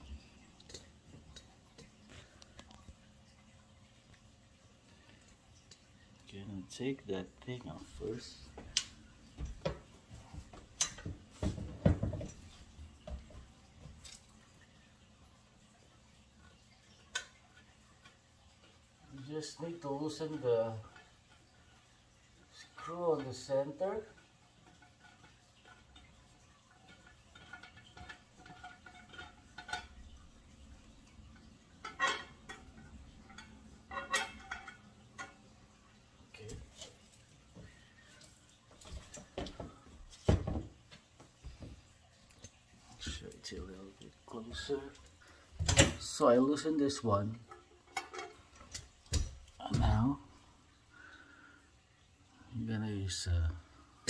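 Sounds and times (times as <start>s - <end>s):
knocks and thumps of handling: 8.5s - 14.2s, 38.7s - 41.9s.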